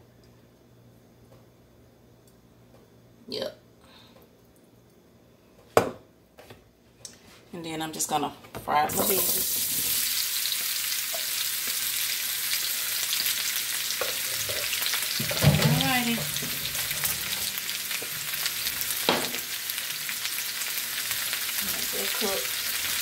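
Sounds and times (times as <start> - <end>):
vegetables sizzling in oil: 8.9 - 23.0.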